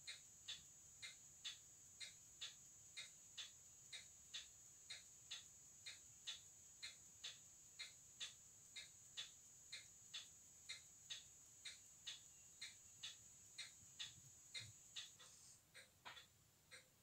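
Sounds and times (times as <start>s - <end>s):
watch ticking faintly: 0.0s - 17.0s.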